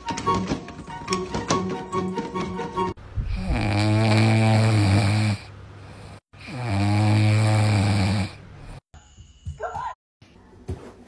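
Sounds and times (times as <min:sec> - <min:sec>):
puppy snoring: 0:03.3 - 0:08.8.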